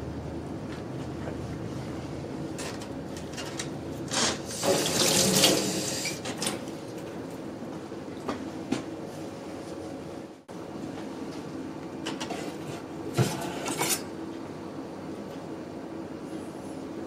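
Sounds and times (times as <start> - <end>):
tap water running into metal sink: 4.5 - 6.2.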